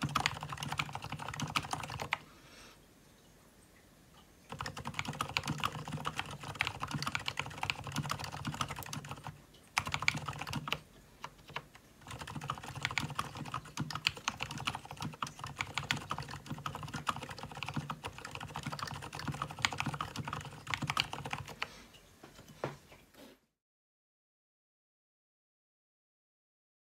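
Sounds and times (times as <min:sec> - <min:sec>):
typing on mechanical keyboard: 0:00.0 - 0:02.2, 0:04.5 - 0:21.7.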